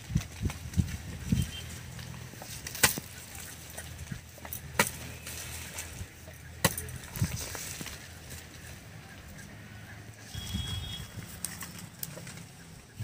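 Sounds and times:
hoe chopping into damp soil: 0:02.5 - 0:03.2, 0:04.6 - 0:05.2, 0:06.6 - 0:07.3.

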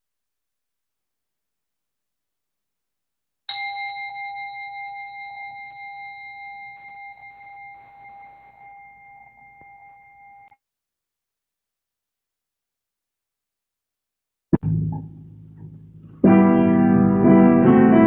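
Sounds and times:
singing bell ringing: 0:03.5 - 0:10.6.

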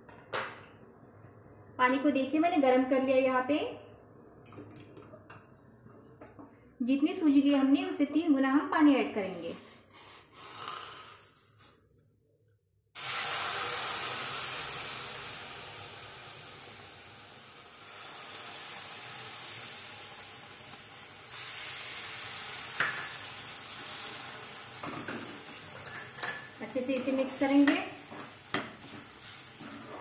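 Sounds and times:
water sizzling in hot semolina: 0:09.4 - 0:11.8, 0:13.0 - 0:30.0.

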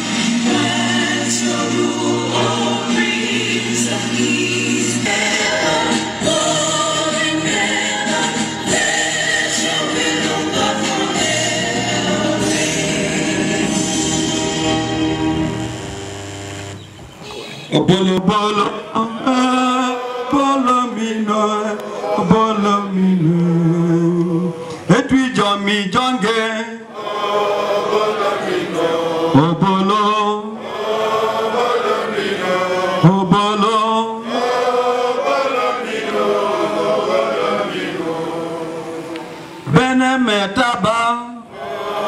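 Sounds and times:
man singing into a microphone: 0:17.8 - 0:26.9.

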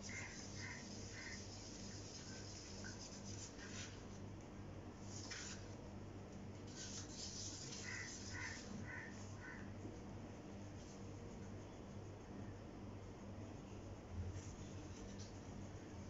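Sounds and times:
wooden stick scraping paint in cup: 0:06.6 - 0:09.1.

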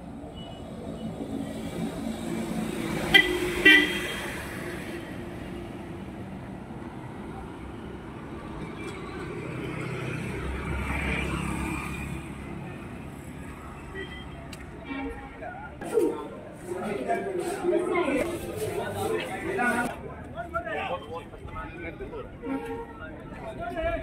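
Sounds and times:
street traffic noise: 0:00.0 - 0:24.0
vehicle horn toots: 0:03.1 - 0:04.3.

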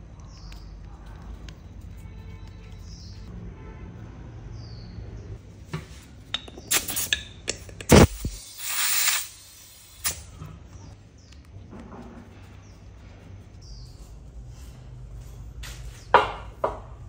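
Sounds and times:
short hiss: 0:07.9 - 0:10.3.

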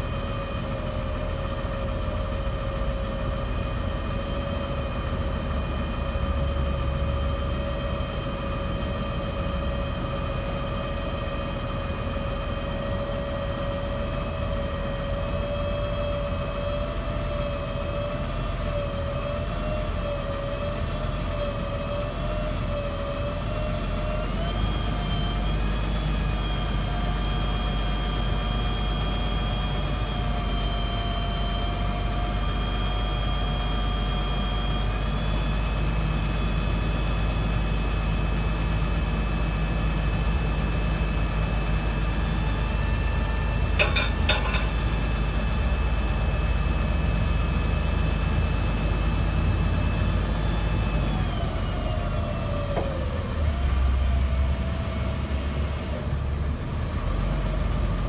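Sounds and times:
truck diesel engine running: 0:41.0 - 0:47.3.

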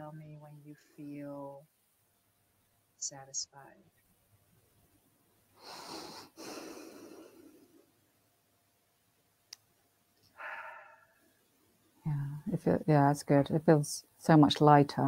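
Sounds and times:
person breathing deeply: 0:05.6 - 0:07.8, 0:10.4 - 0:11.2.

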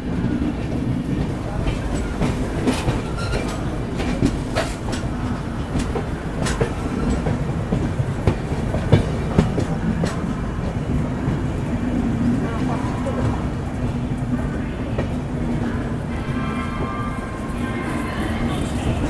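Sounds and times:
train wheels rumbling on track: 0:00.0 - 0:19.0
wheels clacking over rail joints: 0:00.4 - 0:13.5.

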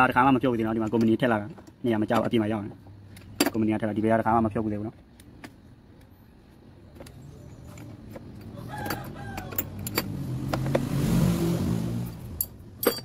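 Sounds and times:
rooster crowing: 0:08.5 - 0:09.8.

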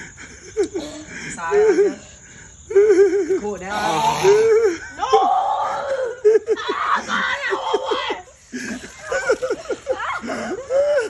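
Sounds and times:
person laughing hard: 0:06.0 - 0:11.0.

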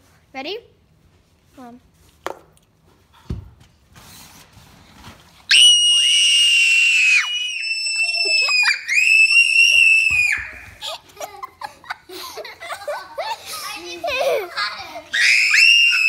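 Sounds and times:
girl screaming: 0:05.5 - 0:10.6, 0:15.1 - 0:16.0.

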